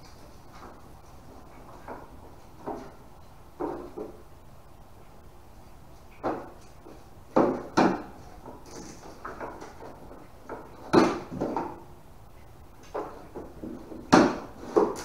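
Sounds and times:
plywood panels knocking and scraping: 0:00.0 - 0:03.0, 0:03.6 - 0:04.2, 0:06.2 - 0:11.9, 0:12.8 - 0:15.0.

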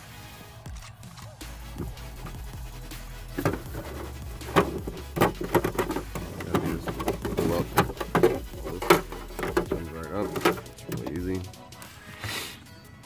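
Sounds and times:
plastic cover clicks and knocks: 0:03.4 - 0:11.1.

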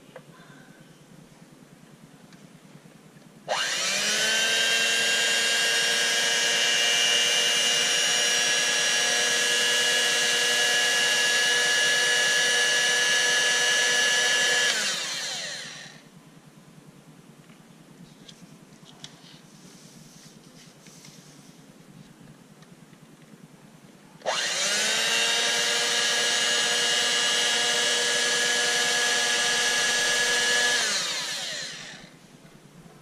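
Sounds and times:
electric hand mixer whining: 0:03.5 - 0:16.1, 0:24.2 - 0:32.2.

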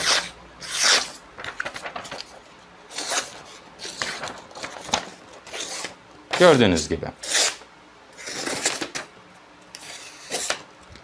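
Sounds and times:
knife scratching through paper: 0:00.0 - 0:01.2, 0:07.2 - 0:07.6, 0:08.2 - 0:08.9, 0:09.8 - 0:10.6.

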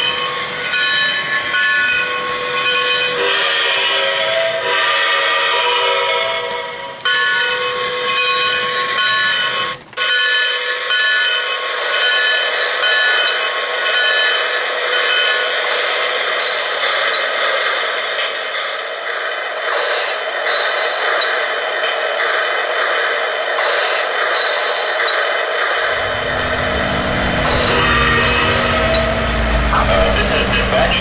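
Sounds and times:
model train running on track: 0:00.0 - 0:31.0
repeating signal tone: 0:25.9 - 0:31.0.

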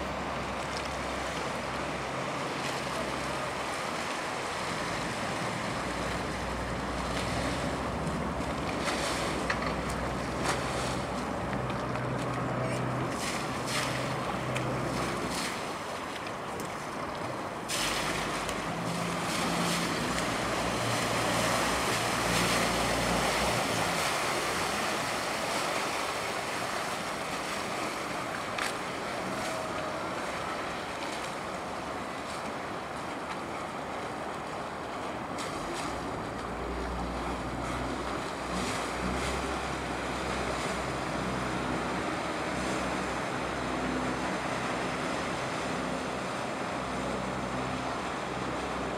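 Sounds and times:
river water sloshing: 0:00.0 - 0:48.9.

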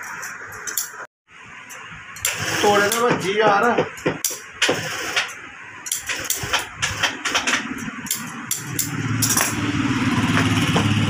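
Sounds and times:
sewing machine motor humming: 0:02.2 - 0:03.2, 0:04.6 - 0:05.4, 0:06.0 - 0:07.7.

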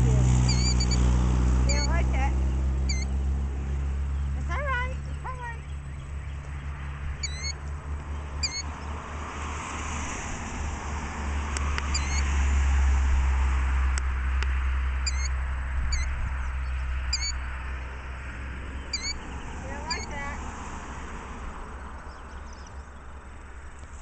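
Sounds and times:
killdeer alarm calls: 0:00.0 - 0:03.2, 0:04.0 - 0:09.0, 0:11.8 - 0:12.4, 0:14.6 - 0:20.4.

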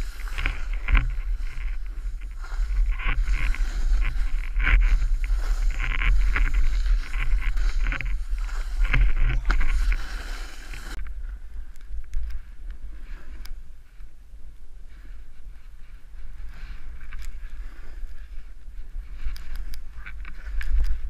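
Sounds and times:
skis scraping on snow: 0:00.0 - 0:11.0, 0:15.0 - 0:21.0
wind buffeting microphone: 0:00.0 - 0:12.5.

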